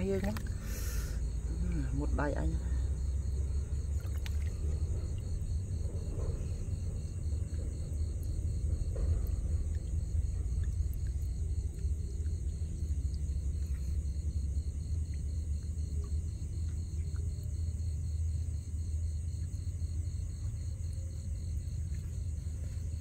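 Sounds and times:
low rumble: 0.0s - 23.0s
night insects chirring: 0.0s - 23.0s
faint splashing in shallow water: 3.4s - 5.4s.

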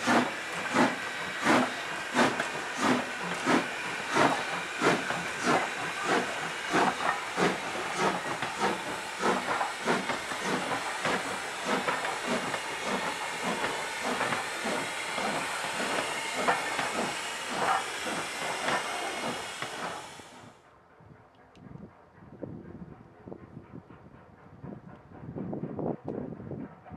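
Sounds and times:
steam hissing: 0.0s - 20.5s
steam locomotive exhaust chuffs: 0.0s - 20.6s, 21.8s - 26.9s.

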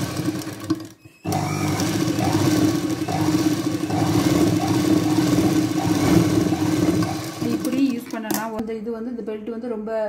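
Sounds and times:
sewing machine stitching: 0.0s - 8.6s.

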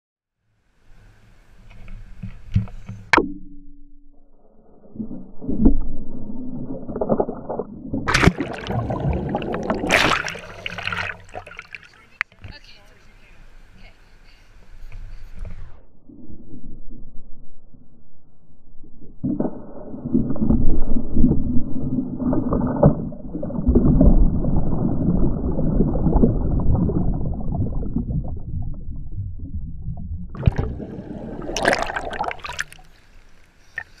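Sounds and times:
underwater rushing and bubbling: 4.3s - 12.1s, 15.4s - 34.0s
water splashing: 4.8s - 12.7s, 19.2s - 34.0s.

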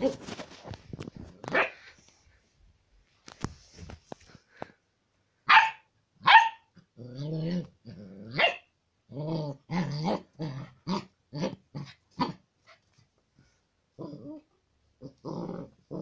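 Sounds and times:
puppy barking: 1.5s - 1.8s, 5.4s - 6.7s, 8.3s - 8.7s
puppy yelping: 5.5s - 6.7s
puppy growling: 6.8s - 12.4s, 13.9s - 16.0s.

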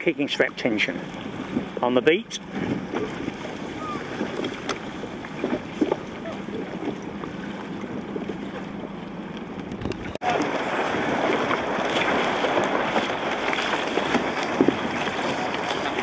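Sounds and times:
water sloshing around boat: 0.0s - 16.0s
wind buffeting microphone: 9.7s - 16.0s.

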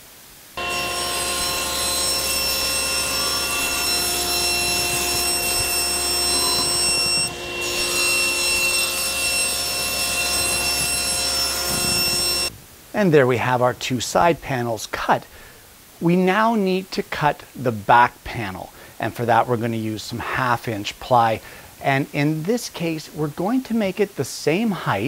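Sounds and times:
table saw ripping plywood: 0.6s - 12.5s.

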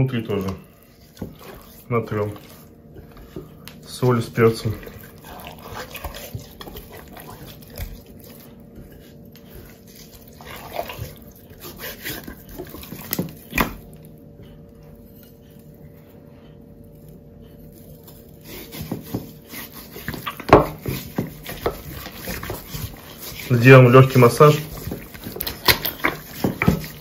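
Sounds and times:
hands rubbing raw duck skin: 0.2s - 13.8s, 18.0s - 27.0s.

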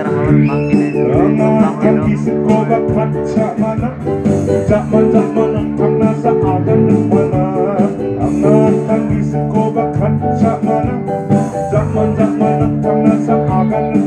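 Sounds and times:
guitar: 0.0s - 14.0s
live band music through speakers: 0.0s - 14.0s.

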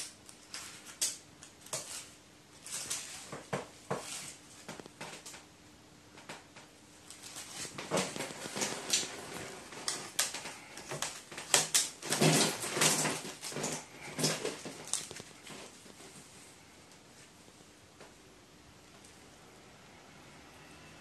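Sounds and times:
paper rustling: 0.0s - 5.4s, 7.1s - 16.3s.

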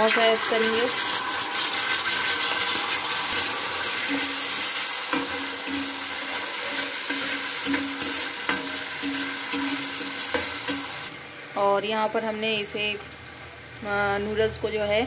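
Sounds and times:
food sizzling in hot oil: 0.0s - 15.0s
metal spatula scraping wok: 2.3s - 11.1s.

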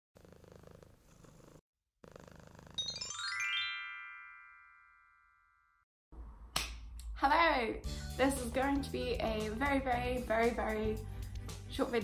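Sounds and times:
cat purring: 0.2s - 2.8s
rising run of chime tones: 2.8s - 5.8s.

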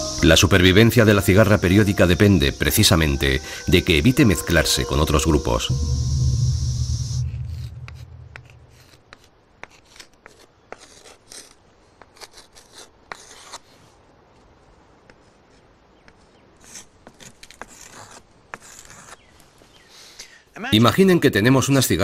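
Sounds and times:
low rumble: 3.9s - 9.0s
chalk scratching on chalkboard: 7.9s - 13.9s, 15.1s - 19.2s.

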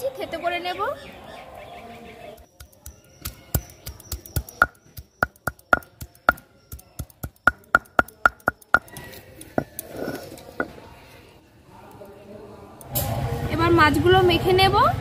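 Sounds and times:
stone roller knocking on stone: 7.2s - 8.9s.

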